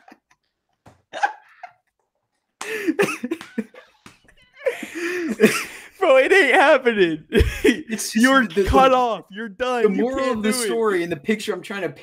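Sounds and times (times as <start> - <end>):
men laughing hard: 0.0 - 0.3, 1.1 - 1.9, 2.6 - 4.0, 4.6 - 5.9.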